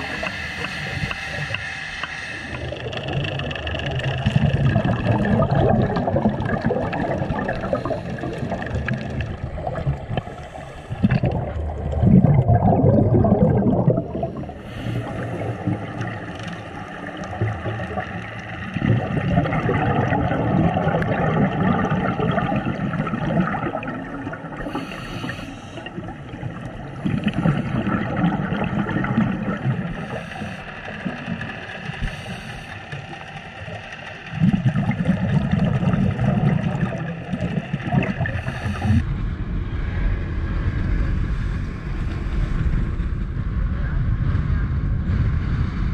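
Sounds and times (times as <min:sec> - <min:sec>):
exhaled bubbles gushing: 0:02.4 - 0:39.1
regulator inhalation hiss: 0:24.7 - 0:25.9.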